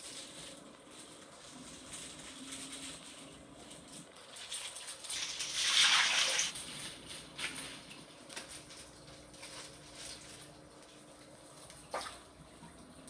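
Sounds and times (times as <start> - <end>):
water splashing in aquarium: 4.0 - 13.0
faint splashes or drips: 10.6 - 13.0.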